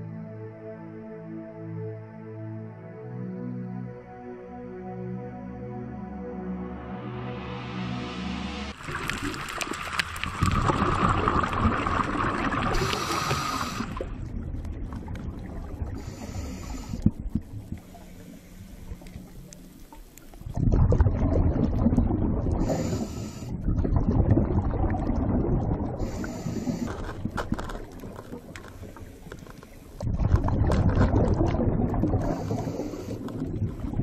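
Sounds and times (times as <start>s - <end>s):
water surging: 8.8s - 14.1s.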